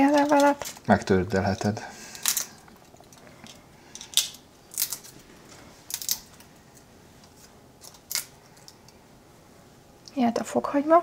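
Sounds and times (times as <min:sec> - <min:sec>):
dried leaves snapping and crackling: 0:00.0 - 0:06.8, 0:07.8 - 0:08.8.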